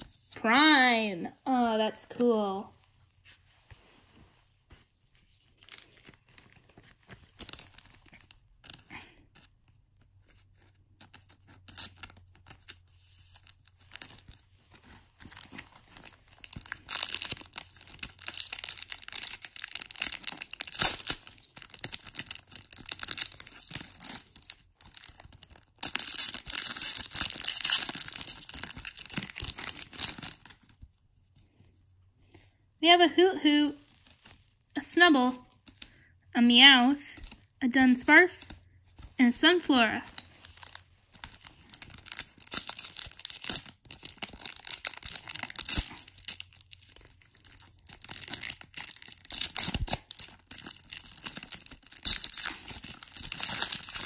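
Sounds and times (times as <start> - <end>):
foil wrapper crinkling and tearing: 5.3 - 31.0, 33.8 - 34.7, 38.6 - 54.0.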